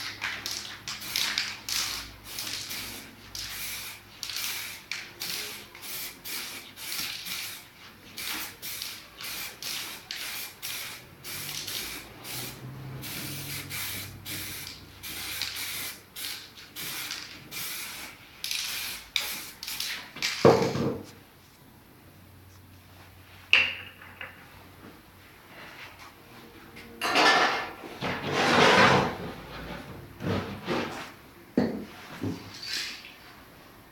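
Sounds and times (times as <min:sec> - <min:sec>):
spray paint can hissing: 0:00.0 - 0:20.2.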